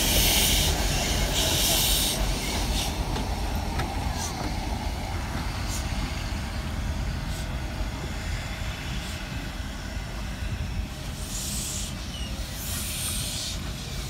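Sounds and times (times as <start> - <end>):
steam hissing: 0.0 - 14.0
steam locomotive running: 0.0 - 14.0.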